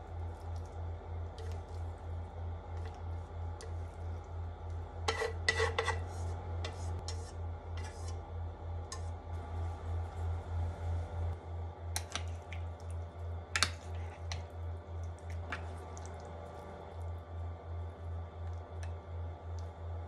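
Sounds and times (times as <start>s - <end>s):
chopsticks scraping a pan: 5.0s - 8.2s.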